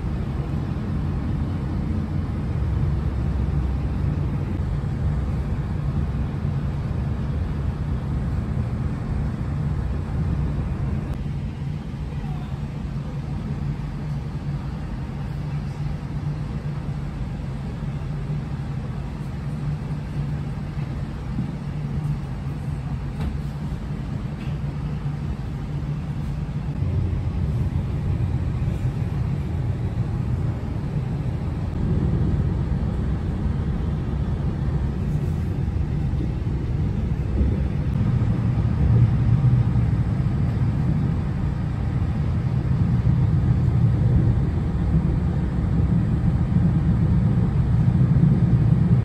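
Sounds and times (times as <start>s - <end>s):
train rumbling on track: 0.0s - 49.0s.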